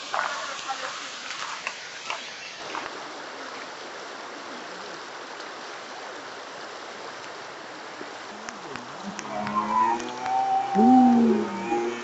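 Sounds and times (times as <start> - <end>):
river running over stones: 0.0 - 12.0.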